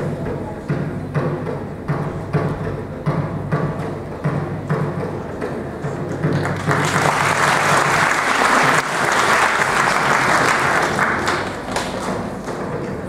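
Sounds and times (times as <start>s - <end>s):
audience applauding: 6.3s - 12.8s.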